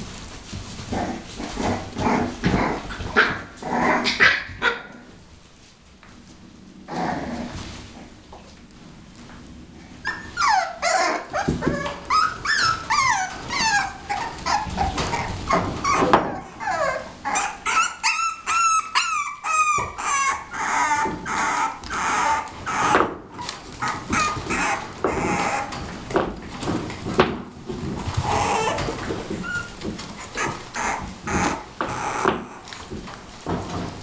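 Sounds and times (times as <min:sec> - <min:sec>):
puppies yapping: 0:10.0 - 0:26.0, 0:28.0 - 0:32.8
puppies yipping and whimpering: 0:10.0 - 0:26.0, 0:28.0 - 0:32.8.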